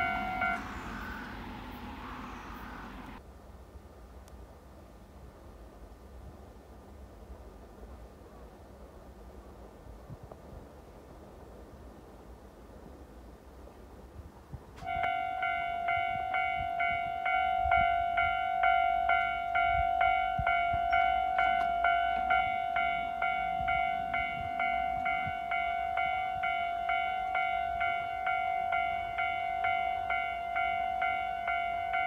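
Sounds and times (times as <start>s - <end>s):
level crossing warning bell: 0.0s - 3.2s, 14.8s - 32.0s.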